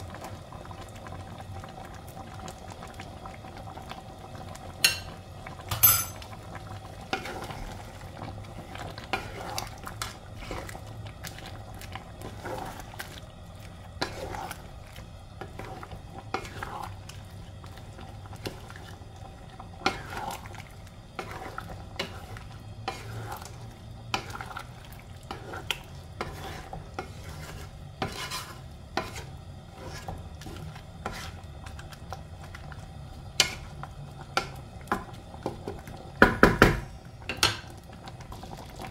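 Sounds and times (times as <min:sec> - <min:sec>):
stew simmering: 0:00.0 - 0:38.9
spatula knocking and scraping pan: 0:25.3 - 0:31.4, 0:35.0 - 0:37.6.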